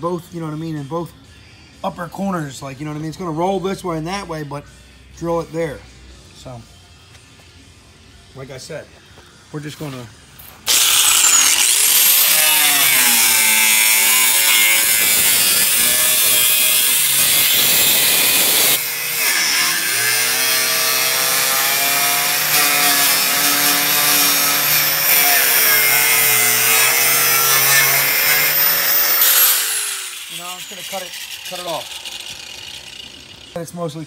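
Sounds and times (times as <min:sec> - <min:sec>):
angle grinder cutting sheet steel: 0:10.6 - 0:33.6.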